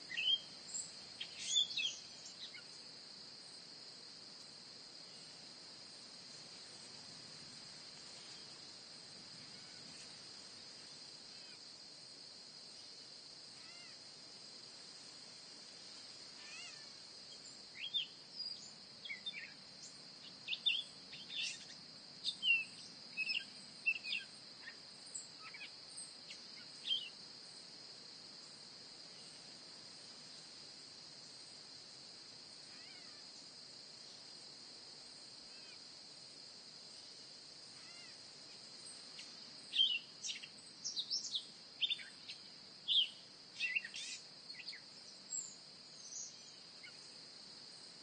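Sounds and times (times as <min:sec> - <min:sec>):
high insect drone: 0:00.0 - 0:48.0
bird chirps and calls: 0:00.1 - 0:00.4, 0:42.9 - 0:44.8.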